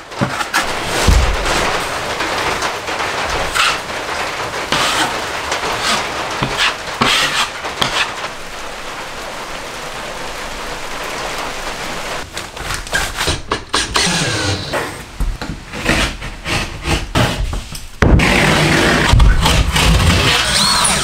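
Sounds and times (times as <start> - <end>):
drywall sheets knocking and rubbing: 0.0 - 8.3, 12.2 - 20.4
drywall knife scraping: 0.1 - 1.8, 3.5 - 3.8, 4.7 - 5.2, 5.8 - 8.2, 15.7 - 20.4.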